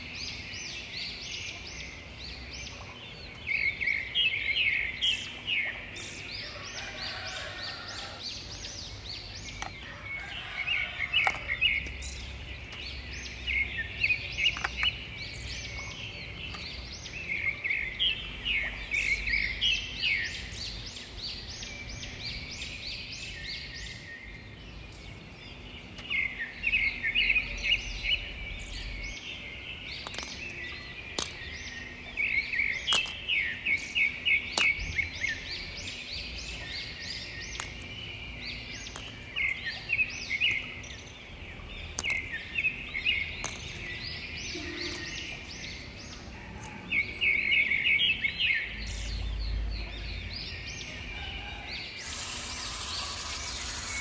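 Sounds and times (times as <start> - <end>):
small birds chirping: 0.0 - 54.0
steady high hiss: 51.9 - 54.0.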